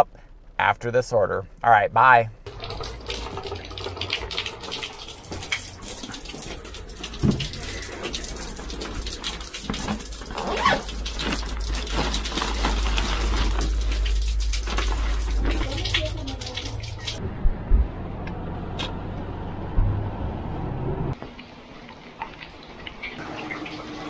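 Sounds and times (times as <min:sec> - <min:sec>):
rain patter: 0:02.5 - 0:17.2
wind rumble on microphone: 0:17.2 - 0:21.2.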